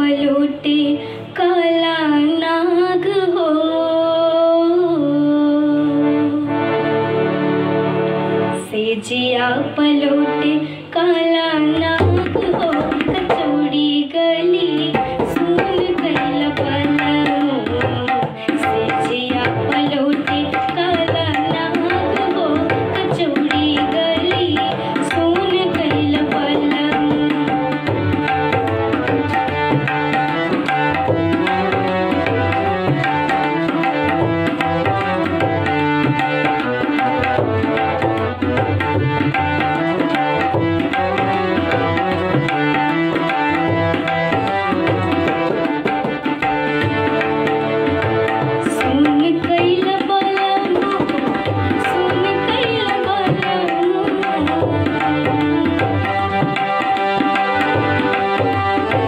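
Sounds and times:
hand drum rhythm: 11.8 - 13.8, 14.8 - 59.0.

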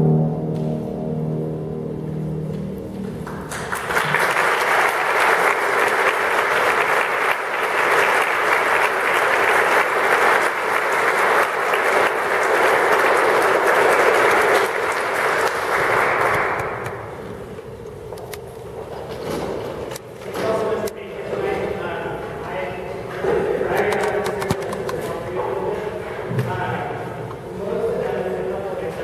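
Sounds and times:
harp ensemble notes ringing: 0.0 - 3.7
audience applauding: 3.2 - 17.2.

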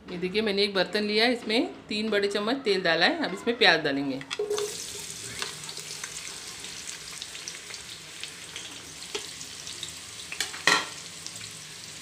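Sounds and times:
onions sizzling in oil: 4.5 - 12.0.

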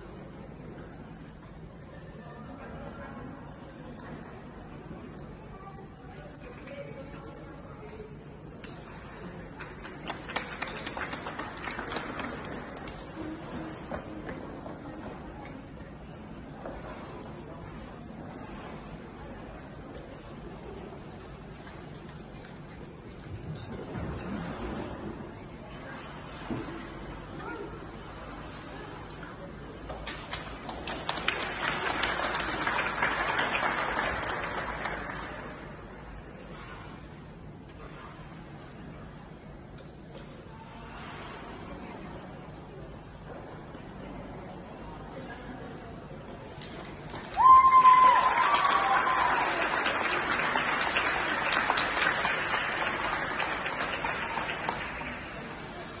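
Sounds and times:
audience applauding: 9.8 - 12.9, 30.6 - 35.4, 47.1 - 55.7.

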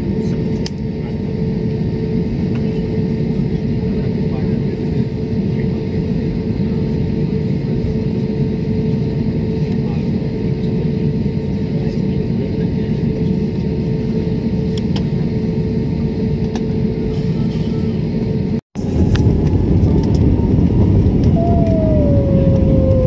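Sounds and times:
jet engine and airflow roar: 0.0 - 23.0
low cabin hum: 18.8 - 23.0.

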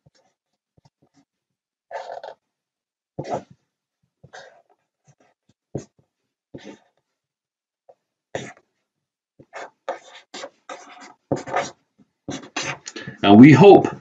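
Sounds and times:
marker scratching on paper: 6.6 - 7.0, 8.3 - 8.7, 9.4 - 12.9.

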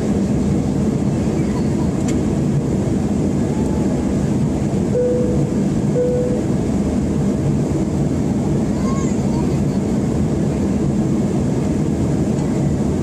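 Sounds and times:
jet engine rumble and airflow: 0.0 - 13.0
short steady tones: 4.9 - 6.5.

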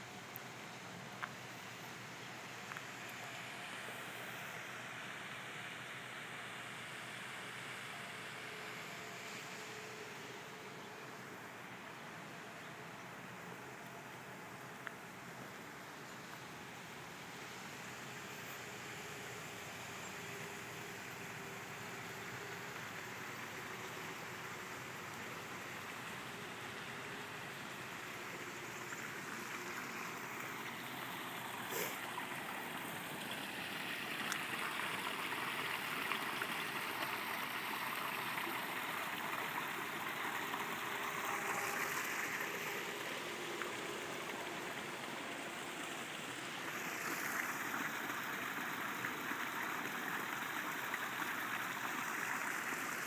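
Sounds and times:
small waterfall splashing: 16.9 - 53.0.

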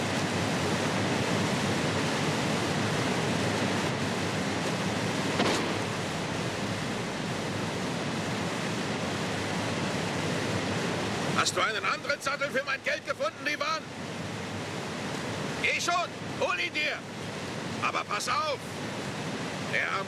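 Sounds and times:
river water rushing: 0.0 - 20.0
sharp knock or splash: 5.4 - 5.9.

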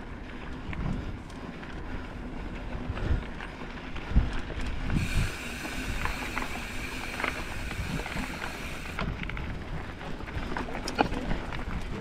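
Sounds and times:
bike tyre and frame rattles: 0.0 - 12.0
bicycle freewheel buzz: 4.9 - 9.0.

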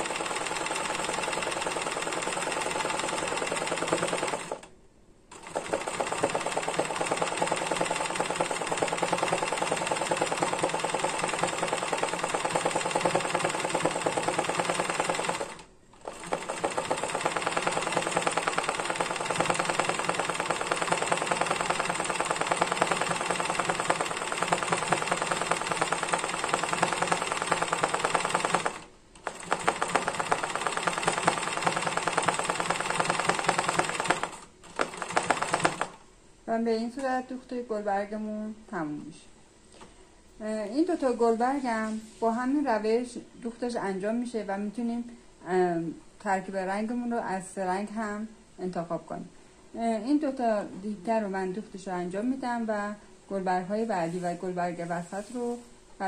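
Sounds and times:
sewing machine stitching fast: 0.0 - 4.7, 5.3 - 36.0.

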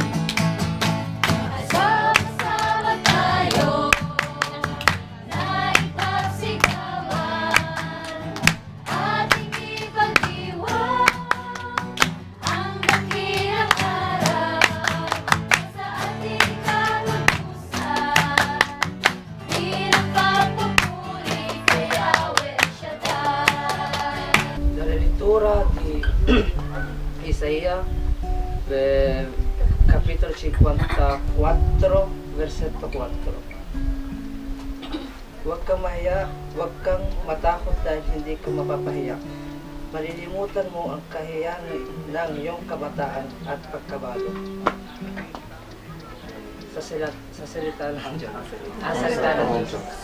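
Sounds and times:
hands clapping: 0.0 - 24.6, 42.9 - 49.7
group singing praise song: 1.0 - 24.7, 47.5 - 50.0.

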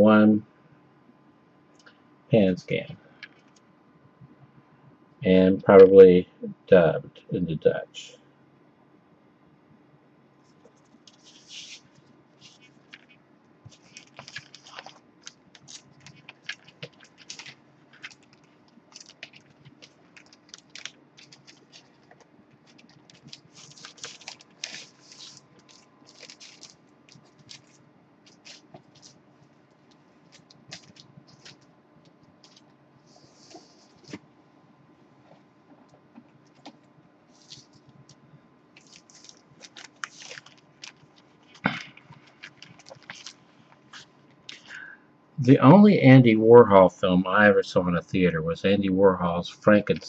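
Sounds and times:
plastic and cardboard crinkling: 10.5 - 34.2, 36.5 - 38.2, 38.8 - 44.7.

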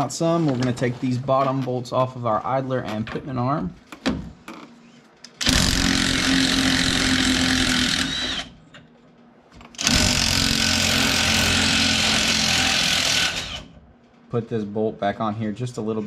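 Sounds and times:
impact wrench hammering: 5.4 - 8.5, 9.8 - 13.7.

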